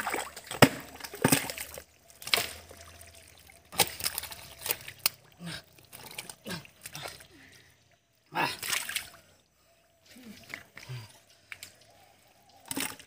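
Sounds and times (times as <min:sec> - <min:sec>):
sharp wet splats: 0:00.0 - 0:03.0, 0:03.7 - 0:07.2, 0:08.4 - 0:09.1
hands squelching in mud: 0:00.0 - 0:07.5.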